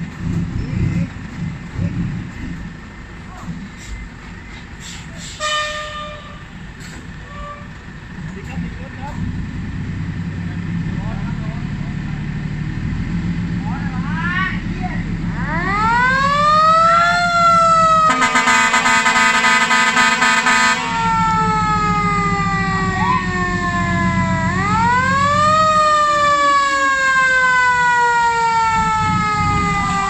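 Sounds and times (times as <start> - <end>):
diesel engine humming: 0.0 - 30.0
multi-tone air horns blast: 4.8 - 6.6, 17.0 - 27.1
truck siren winding up and down: 15.1 - 30.0.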